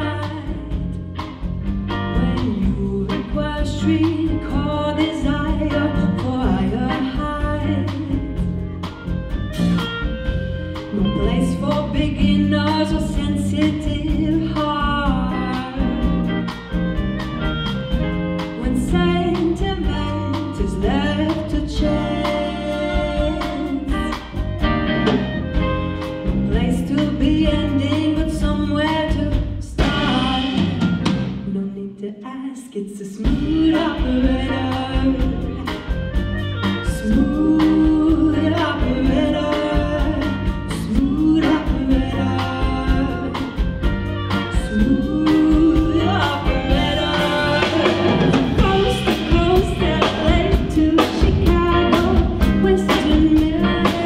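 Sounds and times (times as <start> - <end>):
live rock band: 0.0 - 31.8, 33.2 - 54.0
person singing: 18.5 - 25.2, 26.0 - 30.9, 31.5 - 54.0.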